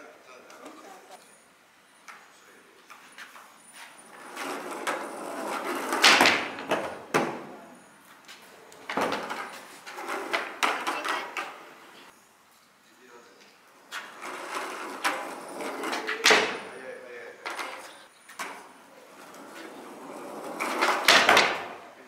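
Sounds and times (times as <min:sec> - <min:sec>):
skateboard wheels rolling: 0:02.9 - 0:12.1, 0:13.8 - 0:22.0
skateboard clacking: 0:04.2 - 0:07.6, 0:08.7 - 0:12.1, 0:14.0 - 0:16.8, 0:17.4 - 0:21.9.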